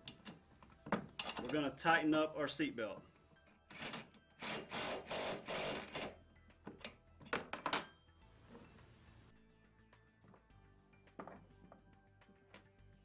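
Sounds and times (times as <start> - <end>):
metal tool clicks: 1.2 - 1.6
cordless drill spinning: 4.4 - 6.1.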